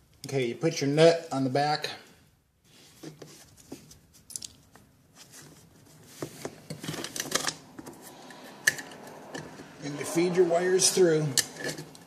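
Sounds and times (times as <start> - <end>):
cable rustling and scraping: 2.7 - 12.0.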